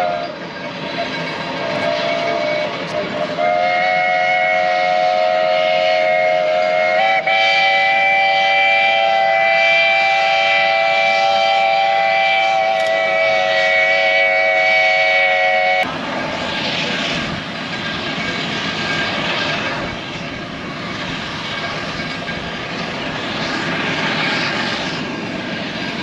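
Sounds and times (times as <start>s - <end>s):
steam locomotive whistle blowing: 0.0s - 0.5s, 1.6s - 15.9s
steady rushing noise: 15.8s - 26.0s.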